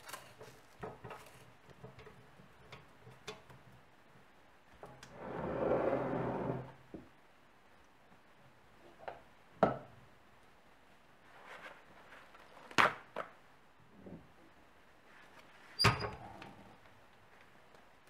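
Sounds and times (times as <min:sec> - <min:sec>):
handling rustles: 0:00.0 - 0:01.6.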